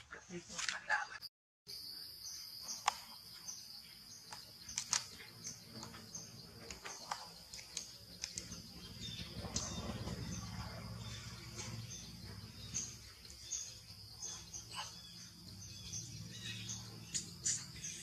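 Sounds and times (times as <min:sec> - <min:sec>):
bird chirps: 0:01.7 - 0:18.0
insect drone: 0:01.7 - 0:18.0
clicks of leaves and twigs: 0:04.3 - 0:08.6
low rumble: 0:08.4 - 0:14.2.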